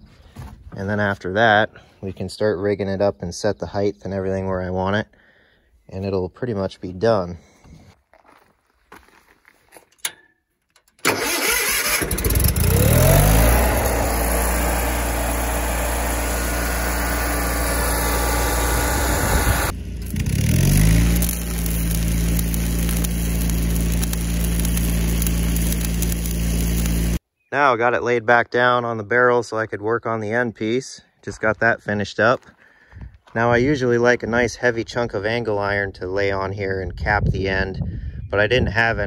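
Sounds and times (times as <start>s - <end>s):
engine starting and running: 10.0s - 27.2s.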